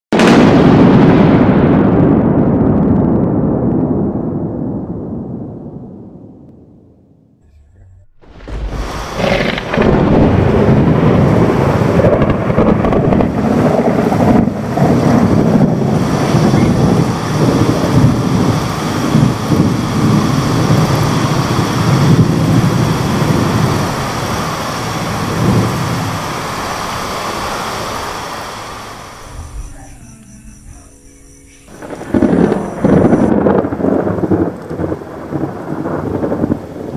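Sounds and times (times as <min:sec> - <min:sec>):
rolling thunder: 0:00.1 - 0:36.9
steady rain: 0:08.2 - 0:30.0, 0:30.7 - 0:36.9.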